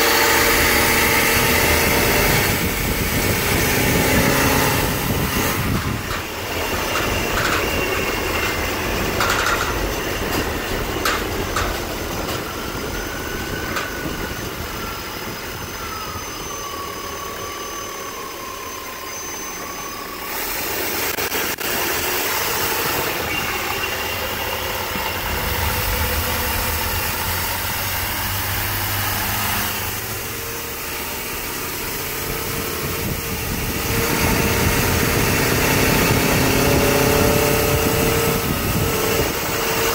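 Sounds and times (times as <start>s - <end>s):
thin wavering whine: 0.0s - 39.9s
engine idling: 20.0s - 36.8s.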